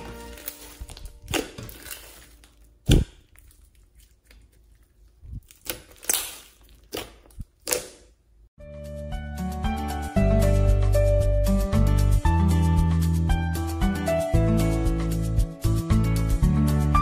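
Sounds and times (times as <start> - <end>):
slime popping and crackling: 0.0 - 8.2.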